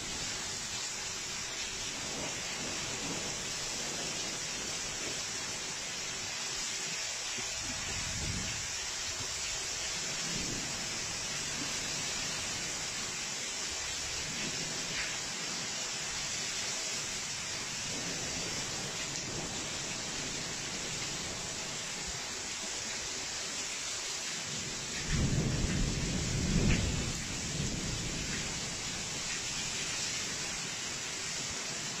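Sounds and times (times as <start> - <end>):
heavy rain pouring: 0.0 - 32.0
thunder rumble: 1.8 - 5.2, 24.9 - 29.9.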